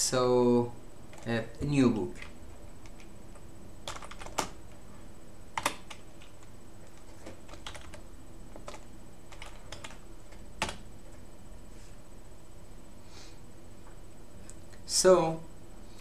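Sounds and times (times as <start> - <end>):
computer keyboard typing: 2.1 - 4.6, 5.6 - 10.8.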